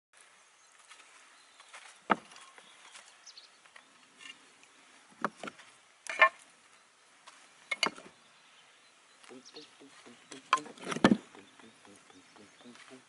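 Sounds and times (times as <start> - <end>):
clay roof tiles knocking: 10.1 - 13.0.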